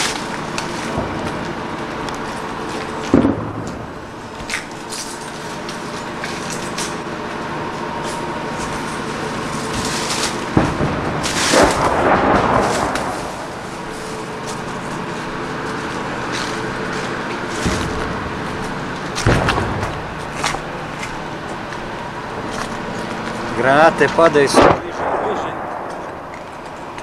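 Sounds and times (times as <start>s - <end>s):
artillery explosions booming: 0.0s - 4.8s, 8.4s - 15.5s, 17.4s - 27.0s
steady background hum: 0.0s - 27.0s
long explosion rumble: 0.9s - 4.4s, 10.4s - 14.8s, 17.6s - 22.5s, 23.4s - 26.9s.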